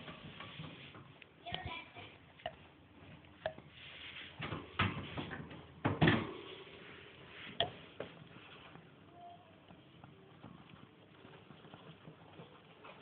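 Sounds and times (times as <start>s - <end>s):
rustling: 6.4s - 13.0s.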